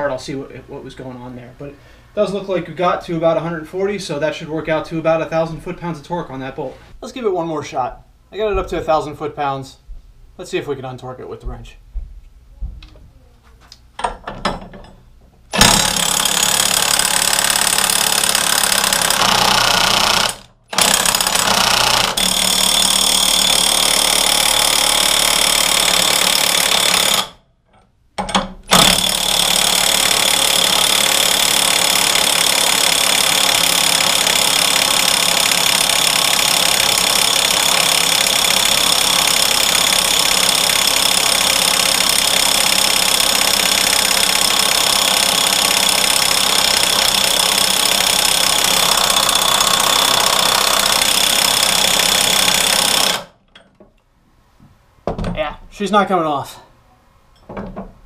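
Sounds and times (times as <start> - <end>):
impact wrench hammering: 14.0 - 27.4, 28.2 - 53.7.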